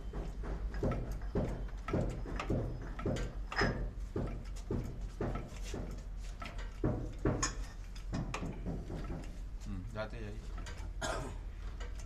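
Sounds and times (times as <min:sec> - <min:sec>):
hydraulic jack pumping knocks: 0:00.0 - 0:09.4.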